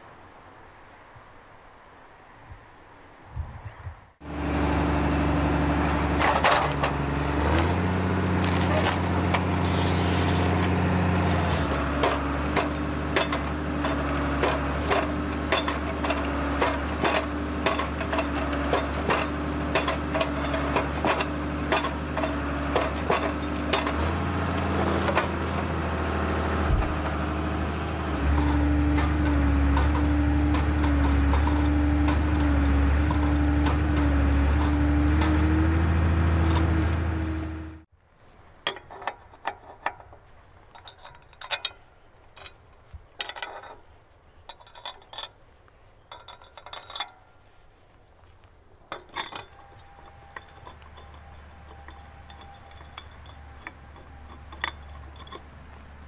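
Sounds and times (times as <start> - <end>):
machine engine and hydraulics: 4.2 - 56.0
wood cracking and snapping: 7.5 - 10.8, 22.9 - 25.7
metallic clinks of steel parts: 10.4 - 25.7, 38.6 - 47.5, 48.8 - 56.0.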